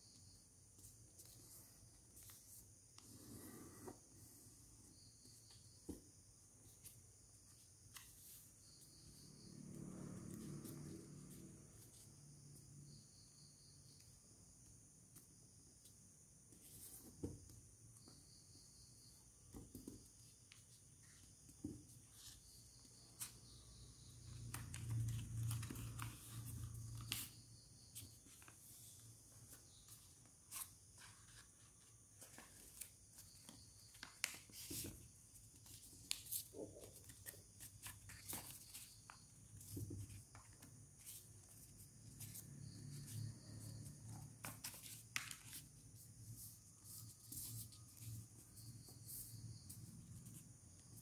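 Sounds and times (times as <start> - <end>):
paper being folded and creased: 24.5 - 27.3.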